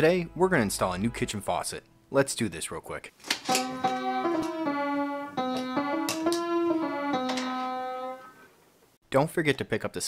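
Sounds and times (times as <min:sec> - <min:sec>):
instrumental music: 0:03.4 - 0:08.4.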